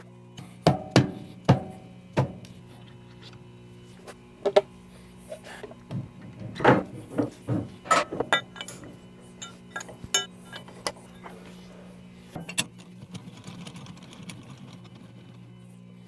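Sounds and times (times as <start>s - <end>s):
metal knocks and clinks: 7.9s - 11.3s.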